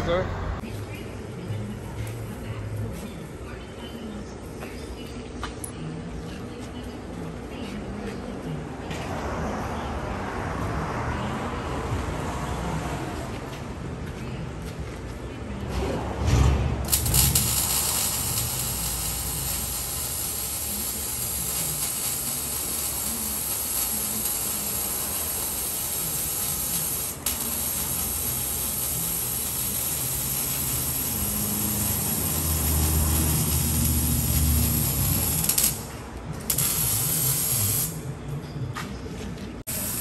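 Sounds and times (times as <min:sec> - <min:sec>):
arc welding crackling hiss: 0:16.9 - 0:35.9, 0:36.5 - 0:38.0, 0:39.7 - 0:40.0.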